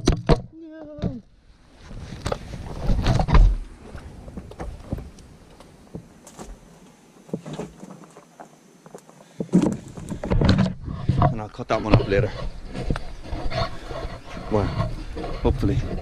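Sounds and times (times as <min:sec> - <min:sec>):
rubber tyre scraping and rubbing: 0:01.6 - 0:05.2, 0:09.4 - 0:16.0.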